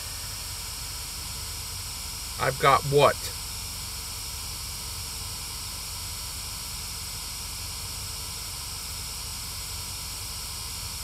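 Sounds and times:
white-noise static hiss: 2.4s - 3.4s.

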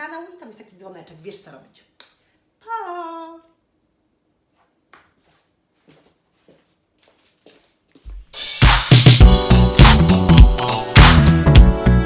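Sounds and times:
loud music with strong beat: 8.3s - 12.0s.

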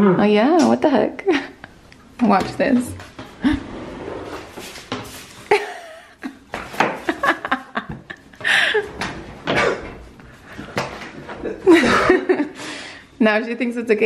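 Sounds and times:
quiet laughter and chuckling: 3.3s - 3.8s, 5.4s - 9.2s, 11.3s - 12.6s.

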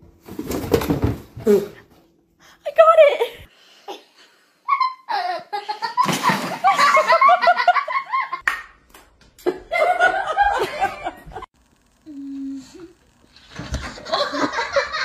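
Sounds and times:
people laughing hard: 4.8s - 8.4s, 9.5s - 11.5s, 13.9s - 15.0s.

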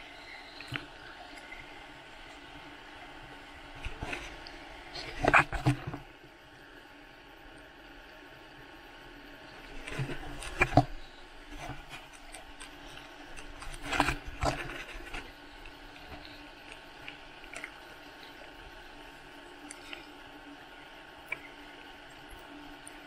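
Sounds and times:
water sloshing against camera case: 3.7s - 6.1s, 9.7s - 20.1s.

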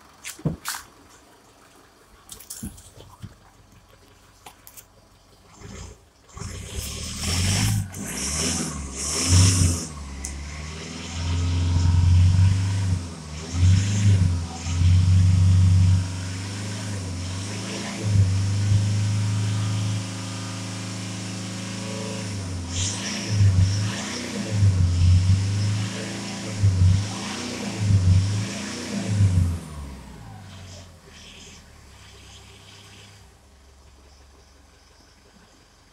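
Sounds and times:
diesel engine revving: 5.5s - 33.5s.

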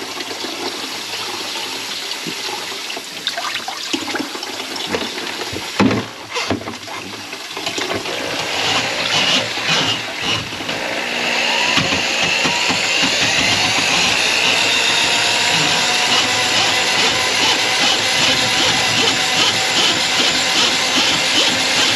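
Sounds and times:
water in a sink: 0.0s - 21.9s
small motor running: 8.0s - 21.9s.

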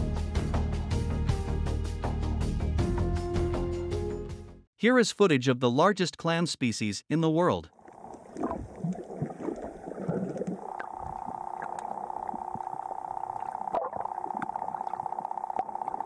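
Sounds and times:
muffled underwater sounds: 7.8s - 16.0s
pulsing hum: 7.9s - 16.0s.

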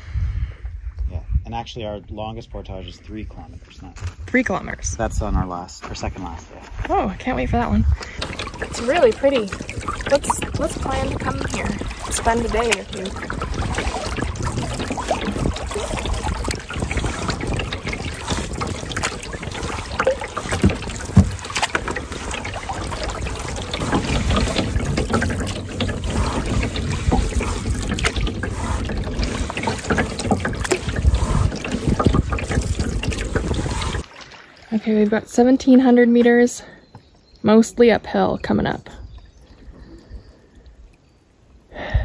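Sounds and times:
water lapping on hull: 3.1s - 42.0s
canoe paddle strokes in water: 6.9s - 35.2s.

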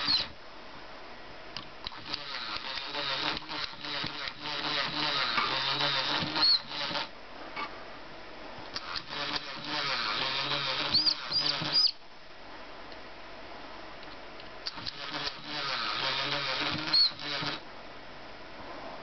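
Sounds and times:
toy buzzing and whirring: 0.0s - 0.3s, 1.8s - 7.1s, 8.8s - 12.0s, 14.7s - 17.6s.

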